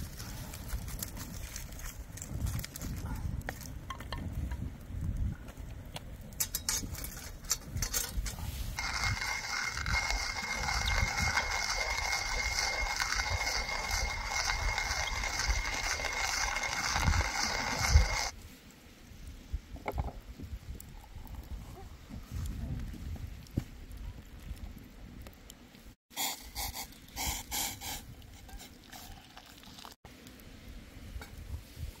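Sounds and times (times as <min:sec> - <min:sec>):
mechanism whirring: 0:08.8 - 0:18.3.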